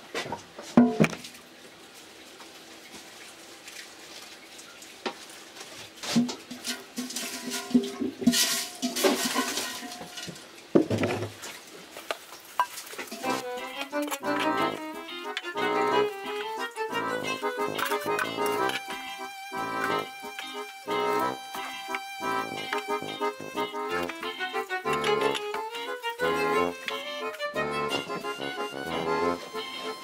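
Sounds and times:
metal bucket clanking on wood: 6.1 - 11.5, 12.6 - 13.4.

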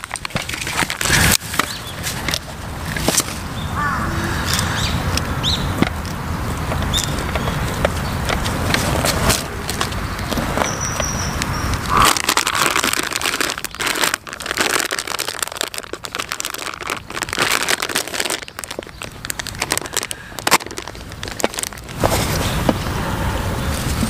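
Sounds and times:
plastic packet crinkling: 0.0 - 3.4, 11.8 - 22.4.

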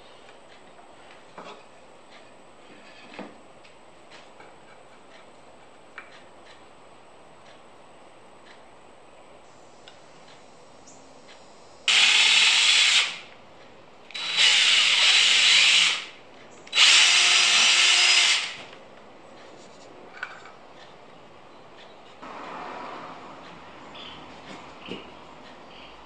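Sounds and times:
cordless drill boring into wood: 11.9 - 13.2, 14.2 - 16.1, 16.7 - 18.6.

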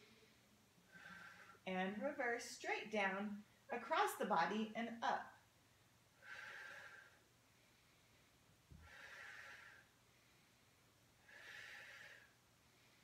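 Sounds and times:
woman breathing softly: 0.0 - 1.6, 6.2 - 13.0.

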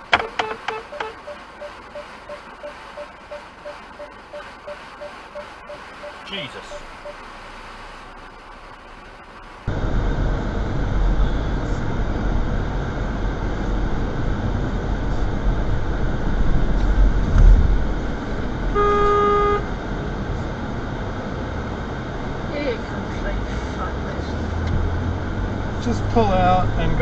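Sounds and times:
road and engine rumble: 0.0 - 27.0
car horn blast: 18.7 - 19.7.

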